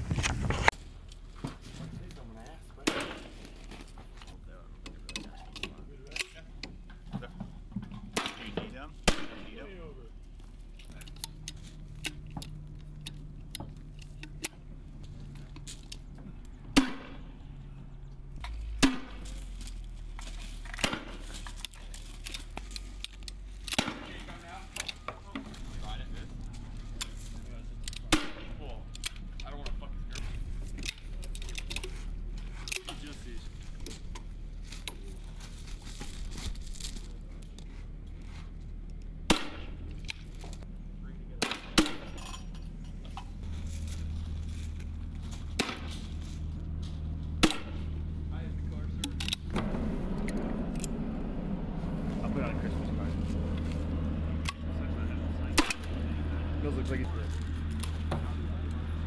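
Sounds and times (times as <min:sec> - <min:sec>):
rifle handling clicks and rustling: 0:03.1 - 0:07.0, 0:10.3 - 0:16.6, 0:18.4 - 0:25.5, 0:26.4 - 0:40.7, 0:49.0 - 0:51.0, 0:57.2 - 0:58.1
loud gunshots: 0:08.2 - 0:09.6, 0:16.8 - 0:17.3.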